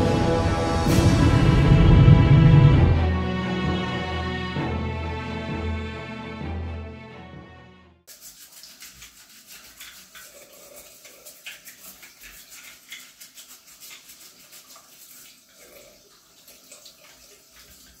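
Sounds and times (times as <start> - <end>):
scratchy rubbing of toy: 8.1 - 15.0
tap water running into sink: 8.1 - 18.0.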